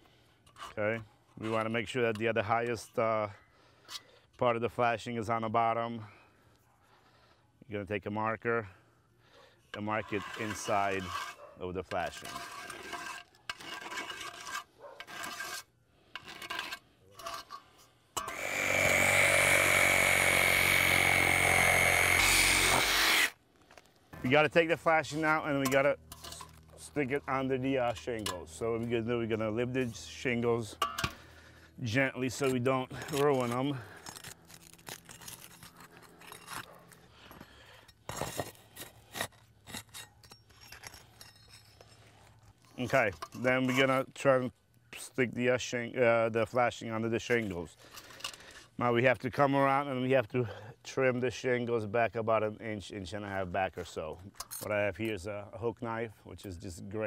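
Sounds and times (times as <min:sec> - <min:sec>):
cordless drill whining: 0:18.2 - 0:23.4
roof shingles crackling and scraping: 0:31.9 - 0:43.9.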